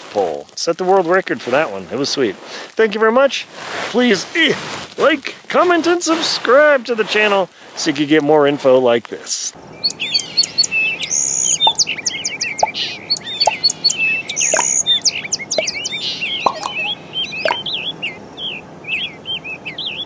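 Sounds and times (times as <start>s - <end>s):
birds chirping and whistling: 9.6s - 20.0s.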